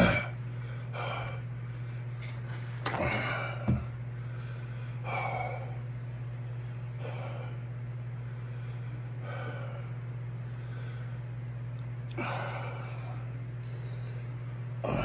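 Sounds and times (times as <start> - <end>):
man breathing heavily: 0.0 - 2.2, 2.9 - 15.0
steady low hum: 0.0 - 15.0.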